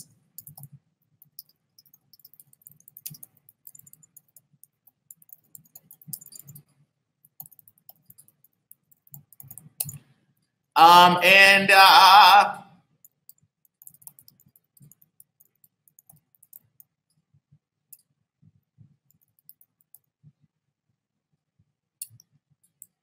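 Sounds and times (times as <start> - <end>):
keyboard typing and mouse clicks: 0.0 - 10.7, 13.0 - 17.3, 18.8 - 20.4, 22.0 - 23.0.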